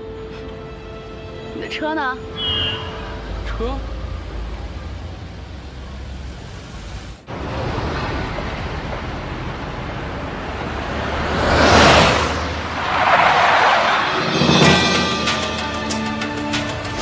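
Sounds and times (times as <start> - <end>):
road traffic noise: 0.0 - 17.0
vehicle passing close by: 2.4 - 14.8.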